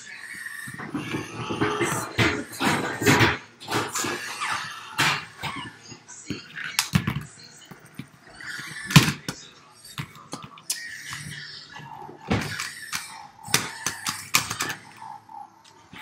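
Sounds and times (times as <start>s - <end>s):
plastic toys knocking on wooden floor: 0.7s - 4.4s, 8.8s - 11.3s, 12.2s - 15.0s
faint child vocal noises: 10.0s - 16.0s.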